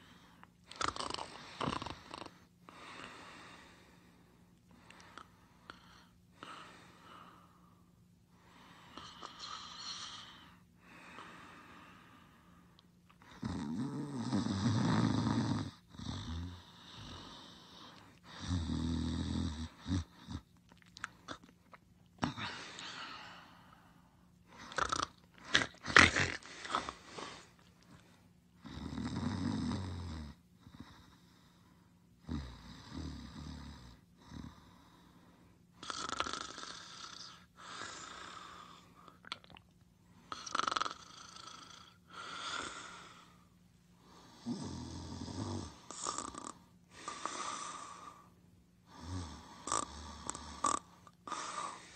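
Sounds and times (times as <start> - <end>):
person snoring: 0.0 - 3.9, 8.8 - 12.4, 13.3 - 20.4, 22.2 - 27.5, 28.6 - 31.2, 35.8 - 39.1, 40.3 - 43.4, 44.1 - 51.9
faint steady hum: 0.0 - 51.9.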